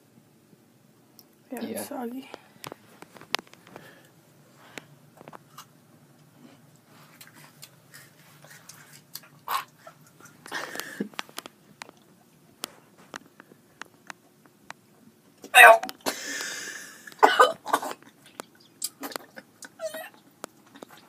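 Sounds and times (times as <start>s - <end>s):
boy chewing crunchy wafer: 4.7s - 14.8s, 15.9s - 21.0s.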